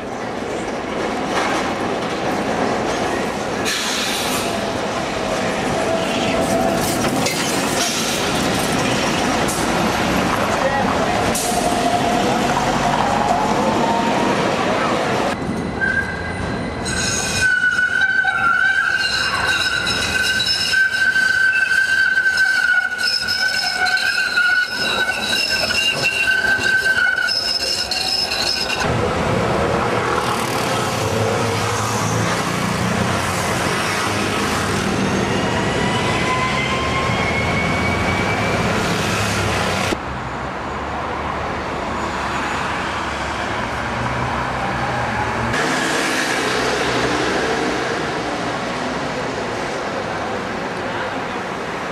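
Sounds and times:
bus passing: 0.0s - 16.8s, 28.9s - 51.9s
street traffic noise: 0.0s - 51.9s
tram wheels squealing on track: 2.8s - 28.9s, 31.6s - 43.8s.

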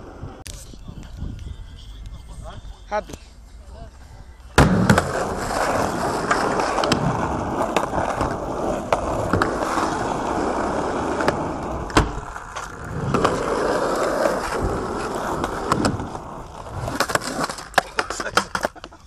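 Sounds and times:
skateboard wheels rolling on asphalt: 0.0s - 0.4s, 4.6s - 19.0s.

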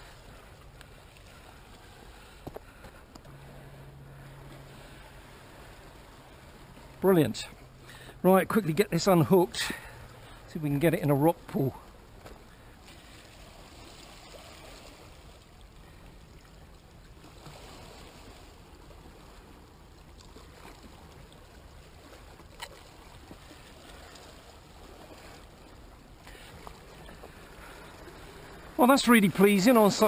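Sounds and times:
sea washing on rocks: 17.2s - 30.0s.

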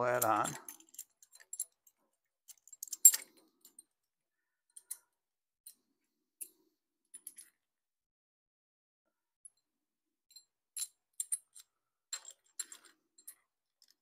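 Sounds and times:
metal parts clinking: 0.0s - 1.8s, 2.5s - 3.8s, 11.2s - 14.0s.

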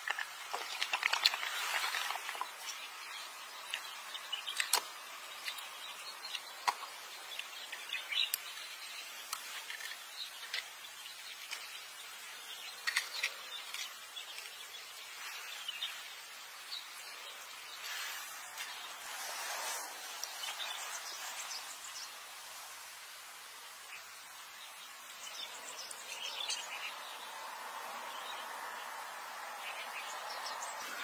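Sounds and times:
faint outdoor hiss: 0.0s - 31.0s
paper cup and stick clicking: 4.5s - 7.5s.

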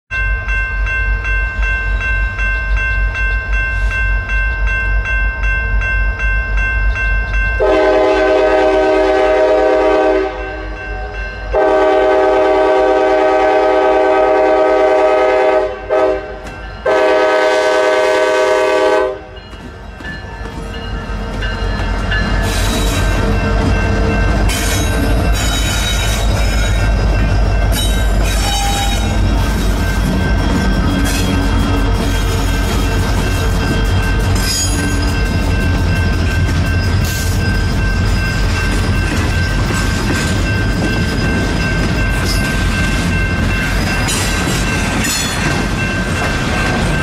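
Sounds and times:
diesel locomotives rumbling: 0.1s - 47.0s
locomotive air horn: 7.6s - 19.4s, 28.3s - 29.3s.

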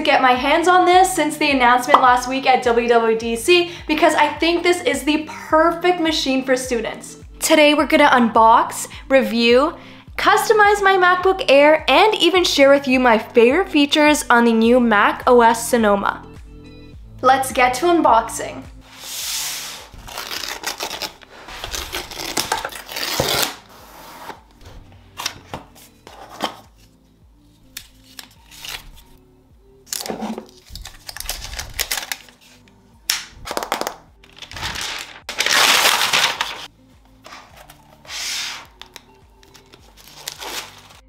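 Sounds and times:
soft background music: 0.0s - 41.0s
cardboard box and paper rustling: 33.5s - 41.0s.

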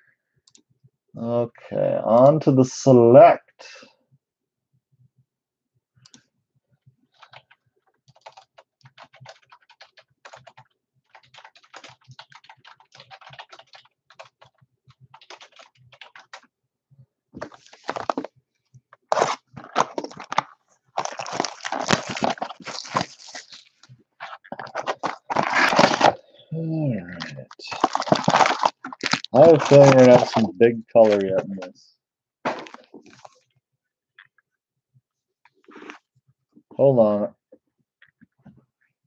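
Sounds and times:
packaging crinkling and tearing: 17.4s - 18.3s, 19.1s - 26.2s, 27.2s - 31.6s, 32.5s - 33.3s.

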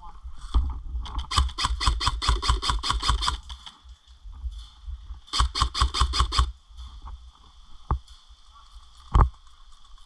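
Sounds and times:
airsoft rifle rapid fire: 1.2s - 3.5s, 5.3s - 6.5s.

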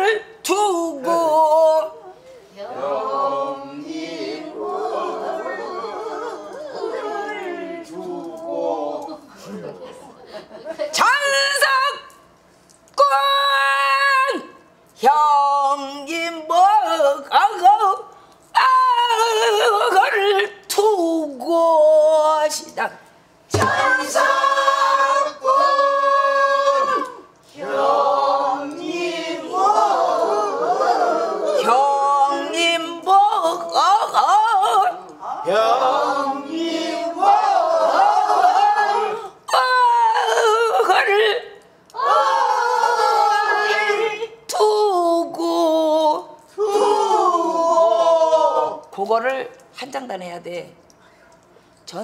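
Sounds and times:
person singing with vibrato: 0.0s - 2.6s, 31.5s - 37.1s, 38.9s - 48.9s
woman singing with wide vibrato: 0.0s - 2.7s, 13.0s - 22.5s, 31.6s - 35.6s, 39.2s - 42.1s
several voices singing together: 2.6s - 9.3s, 23.5s - 39.4s, 41.9s - 44.4s.

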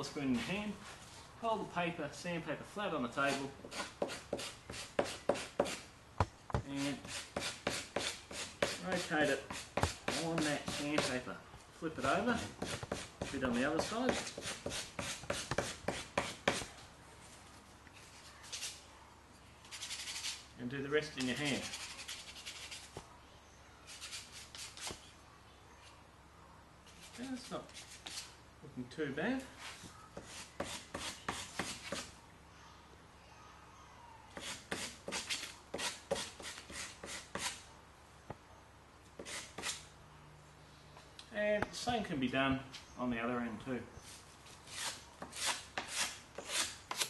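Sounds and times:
sandpaper scratching wood: 3.2s - 5.8s, 6.8s - 11.1s, 12.0s - 16.6s, 19.7s - 20.4s, 21.3s - 22.9s, 23.9s - 25.0s, 34.4s - 37.6s, 39.2s - 39.8s, 44.7s - 47.0s
wood sanding by hand: 3.2s - 5.8s, 6.8s - 11.2s.

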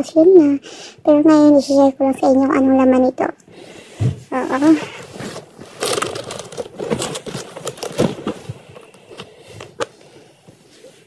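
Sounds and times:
handbag rustling and scraping: 4.3s - 9.8s.

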